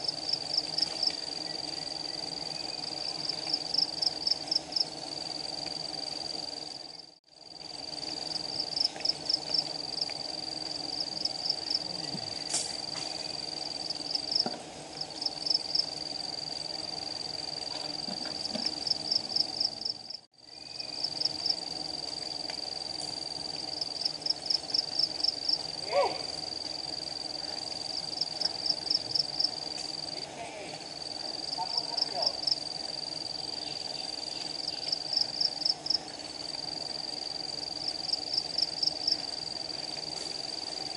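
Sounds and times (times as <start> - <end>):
bee swarm buzzing: 0.0 - 20.2
high insect whine: 0.0 - 40.9.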